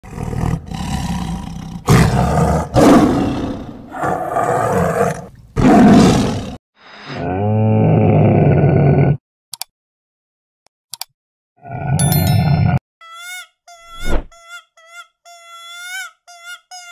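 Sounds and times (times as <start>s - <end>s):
tiger roaring and growling: 0.0s - 6.6s, 7.2s - 9.2s.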